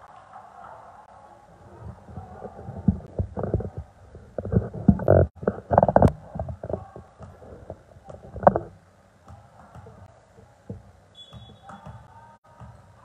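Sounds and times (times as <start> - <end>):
referee's whistle: 11.1 - 12.0.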